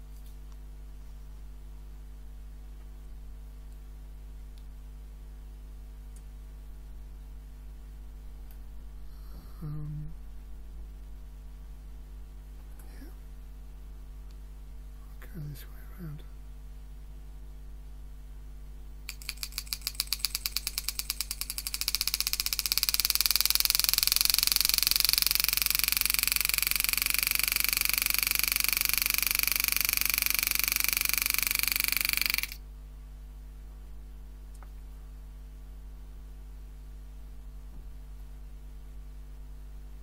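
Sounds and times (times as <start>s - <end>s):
engraving machine hammering metal: 19.1s - 32.6s.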